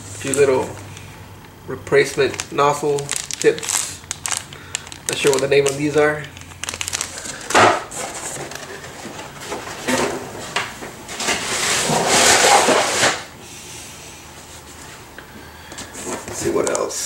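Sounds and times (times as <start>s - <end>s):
cardboard rustling and scraping: 7.8s - 13.3s.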